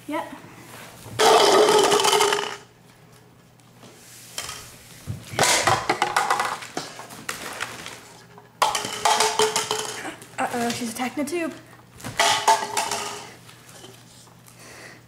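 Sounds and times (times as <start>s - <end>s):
cups clattering on wooden floor: 1.1s - 2.7s, 4.4s - 10.9s, 12.0s - 14.0s
crinkling foil duct: 7.0s - 8.2s.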